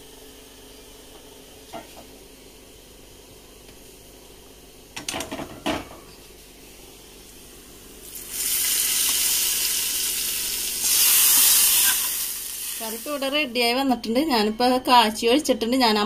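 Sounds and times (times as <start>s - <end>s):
hot oil sizzling: 8.0s - 13.4s.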